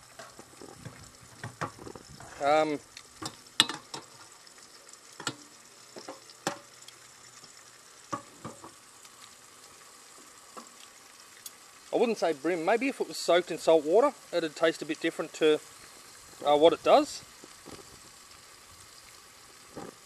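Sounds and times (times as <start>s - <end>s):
fish sizzling in a frying pan: 0.0s - 20.0s
utensil clicking in pan: 5.2s - 7.0s.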